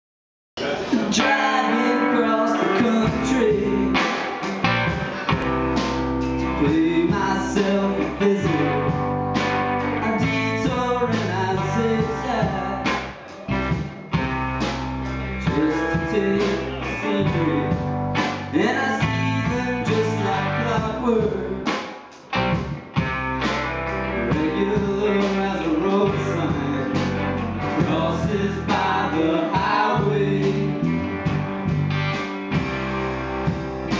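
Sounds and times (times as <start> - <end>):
man singing lead vocal: 0.6 - 4.4, 6.4 - 9.2, 9.8 - 13.5, 15.3 - 21.8, 24.2 - 31.0
electric guitars: 0.6 - 33.9
drum kit: 2.8 - 33.9.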